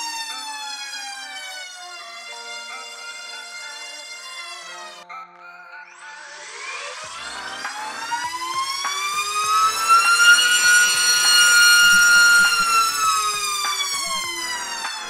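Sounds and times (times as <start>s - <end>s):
brushless motor whine: 6.0s - 15.0s.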